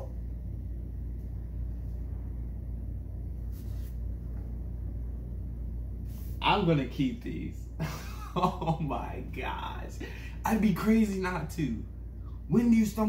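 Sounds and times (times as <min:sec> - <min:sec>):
low room rumble: 0:00.0 - 0:13.0
soft hiss: 0:05.8 - 0:07.6.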